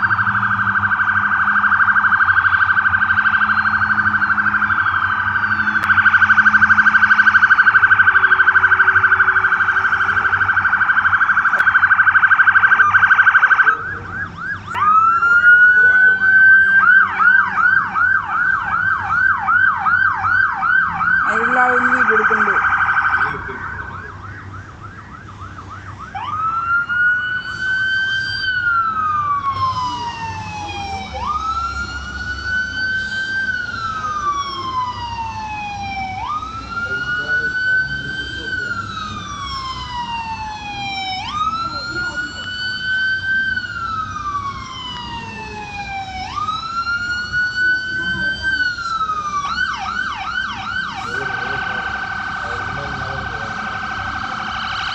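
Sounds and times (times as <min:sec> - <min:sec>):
police siren yelp: 0:00.0 - 0:54.9
police sirens wailing: 0:00.0 - 0:54.9.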